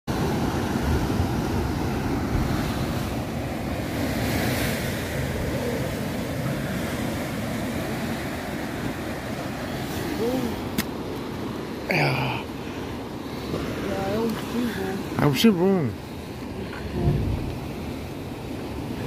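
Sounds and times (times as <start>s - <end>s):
surf breaking on rocks: 0.1s - 11.8s
wind buffeting microphone: 16.2s - 19.0s.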